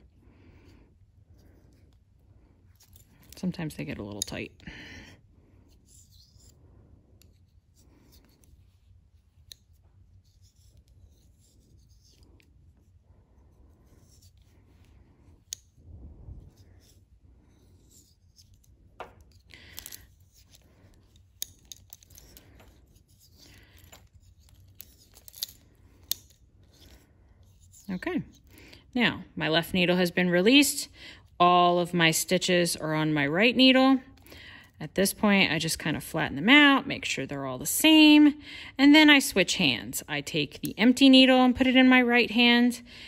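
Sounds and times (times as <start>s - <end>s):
knitting needles clicking: 18.4s - 27.0s.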